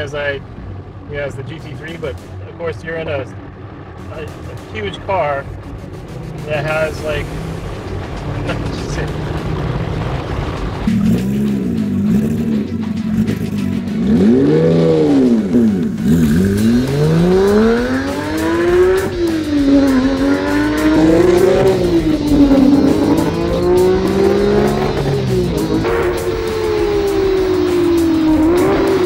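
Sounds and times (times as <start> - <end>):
car engine revving hard: 5.8 - 29.0.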